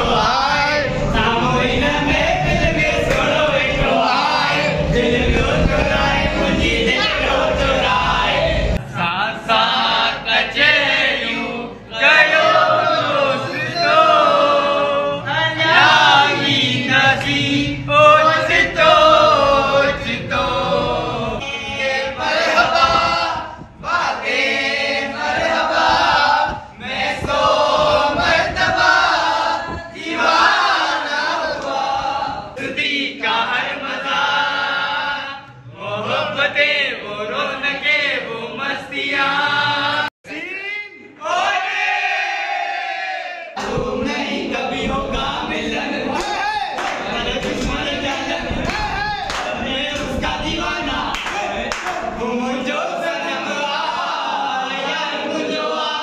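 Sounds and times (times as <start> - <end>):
young men singing in chorus: 0.0 - 40.1, 41.2 - 56.0.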